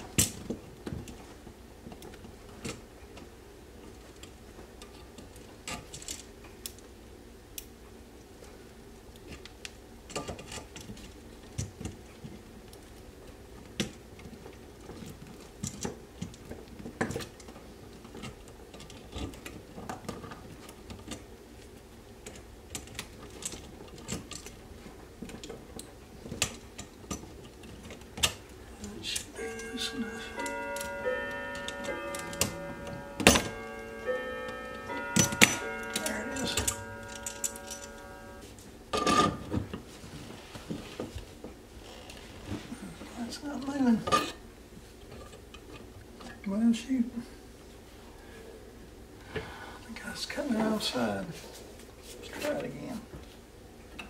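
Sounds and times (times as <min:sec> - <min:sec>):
steady low hum: 0:27.4 - 0:38.9.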